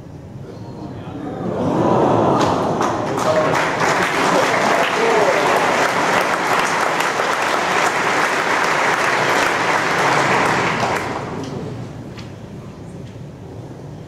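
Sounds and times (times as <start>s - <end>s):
audience applauding: 2.2s - 11.8s.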